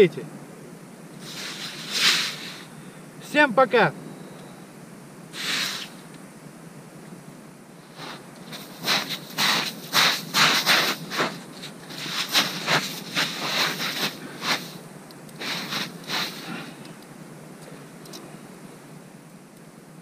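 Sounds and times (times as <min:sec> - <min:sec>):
footsteps crunching in snow: 0:01.2 - 0:02.6, 0:07.8 - 0:14.8, 0:15.4 - 0:16.8.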